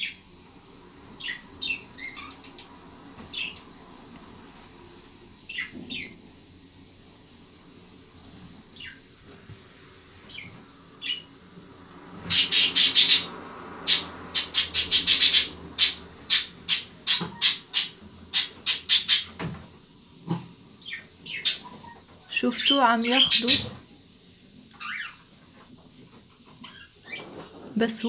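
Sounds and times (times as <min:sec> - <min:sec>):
hamster squeaking: 0:13.9 - 0:19.4, 0:20.3 - 0:23.8, 0:24.7 - 0:25.2.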